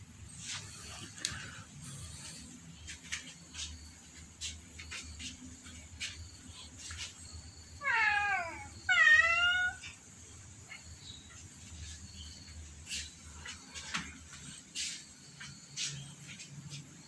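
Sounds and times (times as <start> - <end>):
cat meowing: 7.8 - 10.0.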